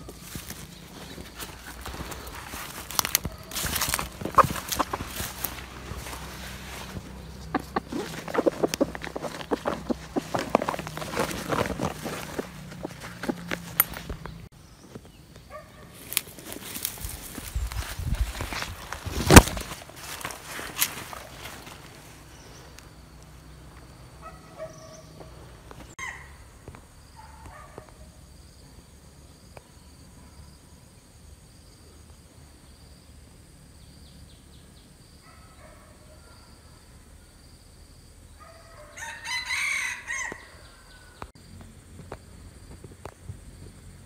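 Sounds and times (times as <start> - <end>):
rooster crowing: 38.5 - 41.2.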